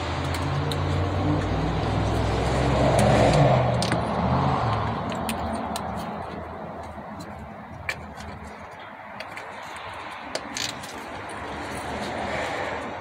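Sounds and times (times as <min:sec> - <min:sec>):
vehicle passing by: 0:00.0 - 0:06.3, 0:11.2 - 0:13.0.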